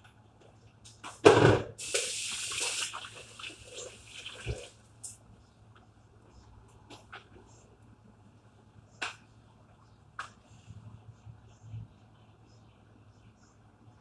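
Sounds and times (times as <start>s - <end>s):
tap water running into sink: 1.8s - 4.7s.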